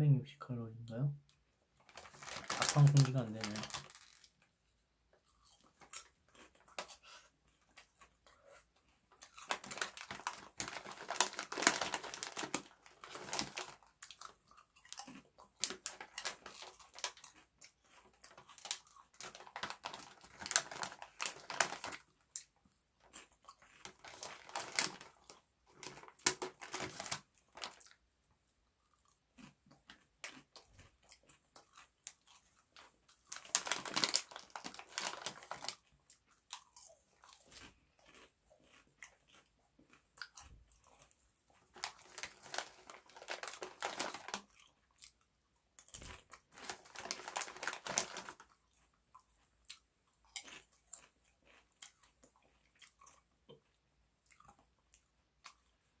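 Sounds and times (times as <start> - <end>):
foil snack bag crinkling: 1.8 - 4.4, 9.2 - 22.2, 23.1 - 28.0, 32.1 - 36.6, 41.7 - 44.7, 45.8 - 48.6
person crunching chips: 1.9 - 4.4, 5.2 - 8.4, 9.1 - 28.0, 28.8 - 45.2, 45.8 - 53.2.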